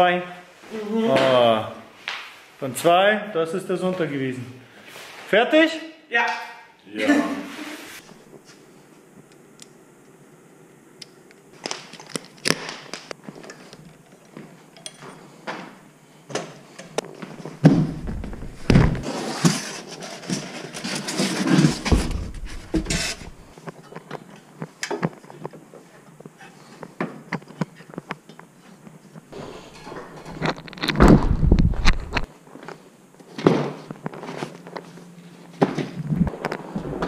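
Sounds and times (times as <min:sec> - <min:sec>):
studio equipment clattering: 0:17.7 - 0:19.0
handling noise bumping camera: 0:30.3 - 0:32.3.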